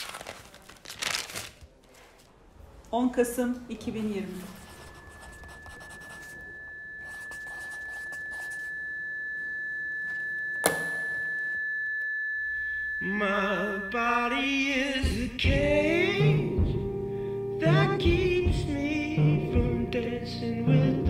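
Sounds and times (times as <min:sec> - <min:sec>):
steady high-pitched tone: 0:04.3 - 0:15.4.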